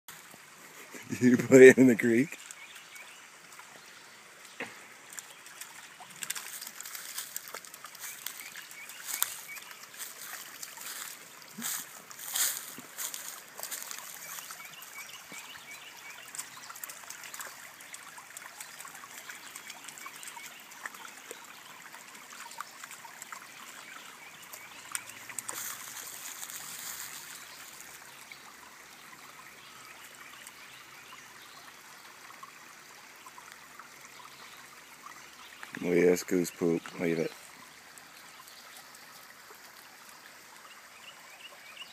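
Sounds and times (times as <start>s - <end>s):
creek trickling: 0.1s - 41.9s
dog splashing in water: 5.2s - 14.6s.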